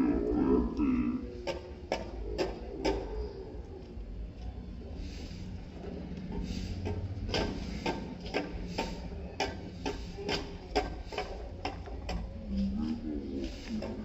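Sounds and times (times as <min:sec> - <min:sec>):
hand tools scraping paving: 0:04.6 - 0:14.0.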